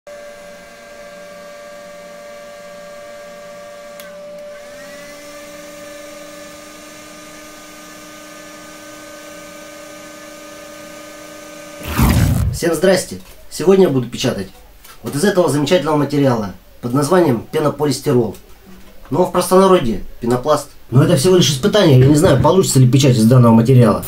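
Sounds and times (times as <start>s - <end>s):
low hum: 11.8s - 12.7s.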